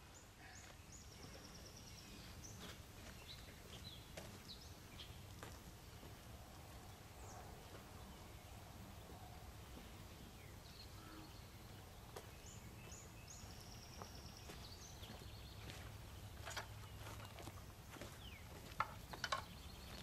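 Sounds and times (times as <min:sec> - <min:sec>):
faint bird chirps: 0:10.4 - 0:11.8.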